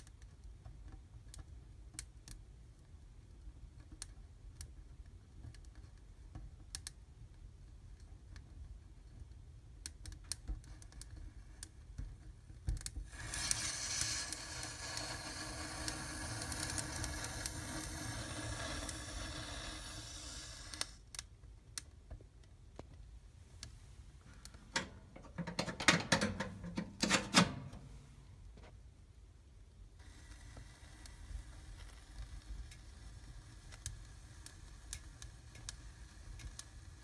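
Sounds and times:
twigs crackling in a fire: 0:09.8 - 0:21.9, 0:30.0 - 0:37.0
firework fountain hissing: 0:13.1 - 0:21.0.

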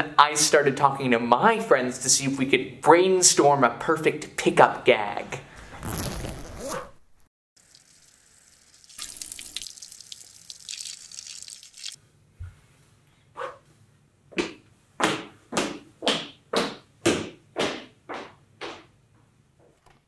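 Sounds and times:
liquid stream splashing: 0:08.8 - 0:12.0.

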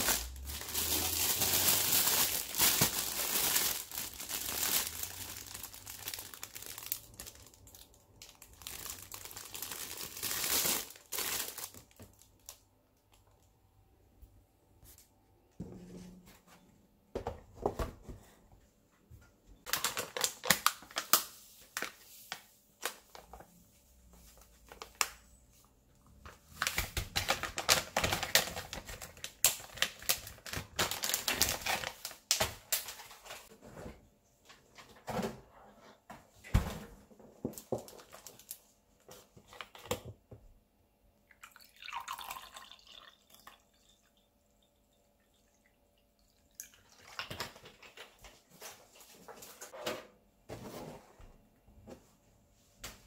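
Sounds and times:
packaging crinkling: 0:00.0 - 0:12.6, 0:19.7 - 0:22.0, 0:26.5 - 0:33.5
water pouring into glass: 0:41.4 - 0:44.2.

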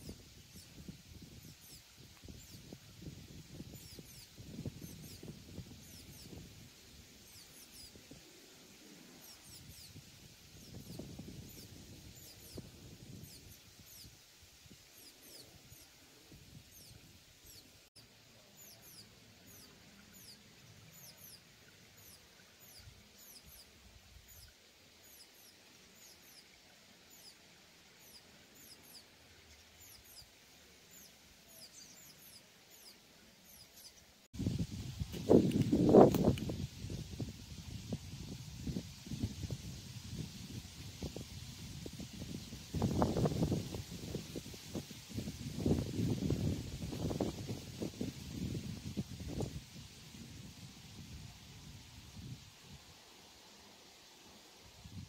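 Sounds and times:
high songbird chirps: 0:00.0 - 0:36.9.

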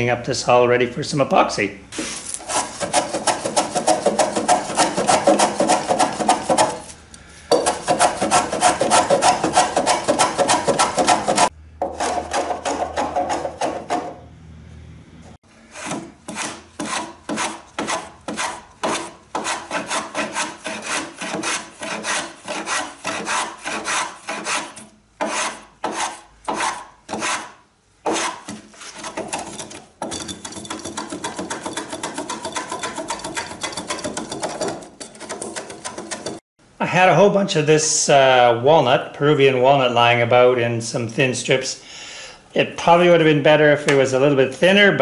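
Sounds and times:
hand tool scraping wood: 0:01.9 - 0:14.2, 0:15.6 - 0:36.4.

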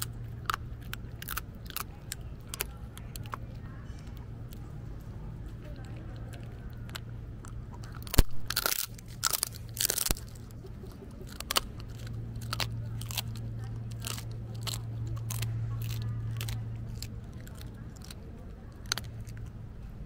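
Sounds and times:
dog crunching a hard treat: 0:00.0 - 0:19.6
steady low hum: 0:00.0 - 0:20.0
dog mouth clicks: 0:05.7 - 0:19.6.

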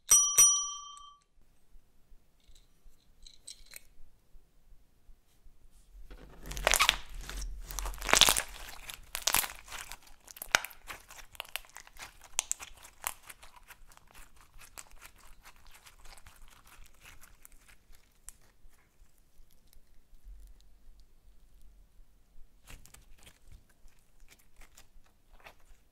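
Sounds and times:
slime crackling and popping: 0:06.2 - 0:20.6.

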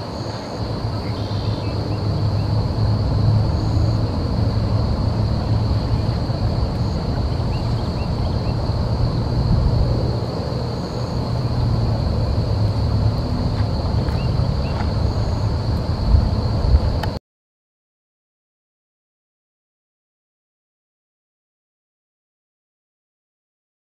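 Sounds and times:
high-pitched insect drone: 0:00.0 - 0:17.2
low rumble: 0:00.6 - 0:17.2.

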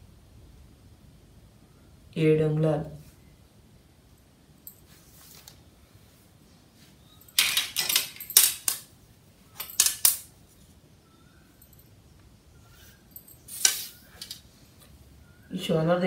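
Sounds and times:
ruler clattering and scraping: 0:07.4 - 0:08.8.

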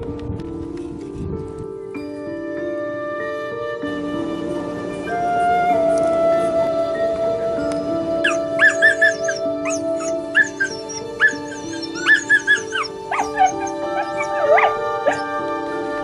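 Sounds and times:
soft instrumental music: 0:00.0 - 0:16.0
dog whining: 0:08.2 - 0:15.4.

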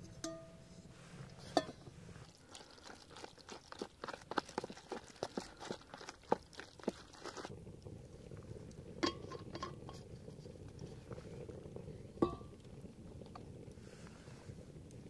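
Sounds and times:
spoon stirring in foil pouch: 0:01.2 - 0:07.5.

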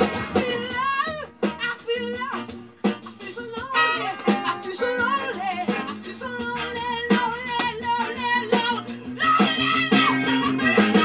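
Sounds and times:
song with singing over a beat: 0:00.0 - 0:11.0.

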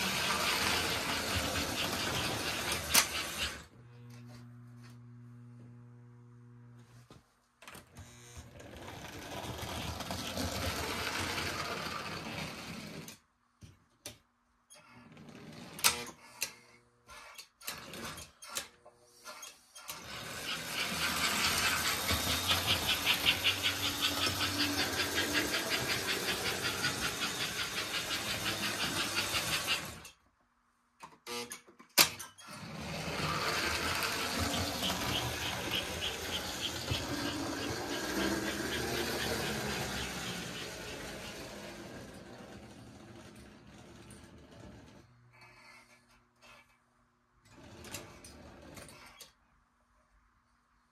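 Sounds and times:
wheel clatter: 0:00.0 - 0:03.6, 0:20.0 - 0:30.1, 0:32.8 - 0:45.0
toy train motor whirring: 0:00.0 - 0:03.8, 0:08.1 - 0:13.2, 0:15.2 - 0:30.2, 0:32.4 - 0:46.8.

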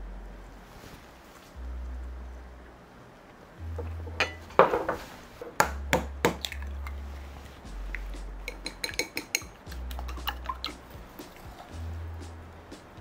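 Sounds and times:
utensils clinking against dishes: 0:08.5 - 0:09.5.

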